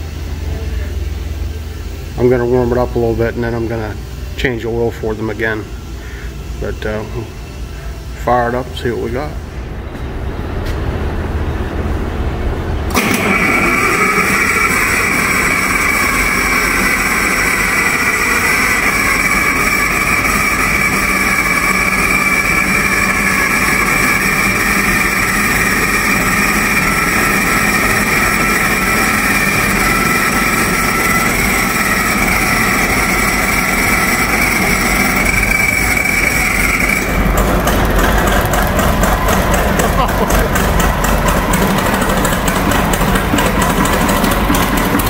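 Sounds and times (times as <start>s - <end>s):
high whine: 0.0s - 45.0s
diesel engine running: 8.8s - 45.0s.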